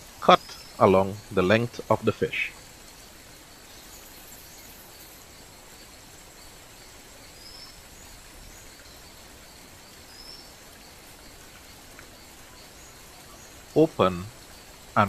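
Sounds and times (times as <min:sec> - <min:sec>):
high insect chirping: 0:00.0 - 0:15.0
steady hiss: 0:00.0 - 0:15.0
bird chirps: 0:09.9 - 0:10.6.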